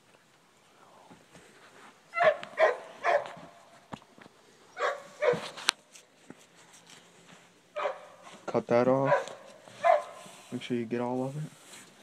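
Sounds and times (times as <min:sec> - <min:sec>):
dog barking: 0:02.2 - 0:03.4, 0:04.8 - 0:05.6, 0:07.8 - 0:08.2, 0:09.0 - 0:10.2.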